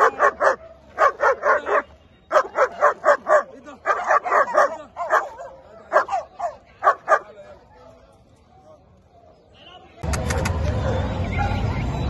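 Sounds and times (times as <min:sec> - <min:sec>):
dog barking: 0:00.0 - 0:07.3.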